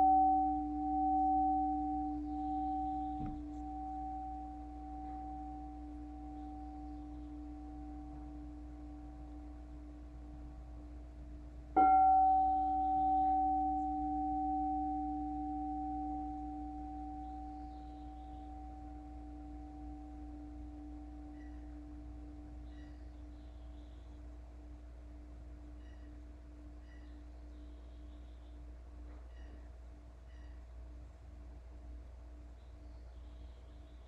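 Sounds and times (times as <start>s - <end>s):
singing bowl ringing: 0.0s - 23.6s.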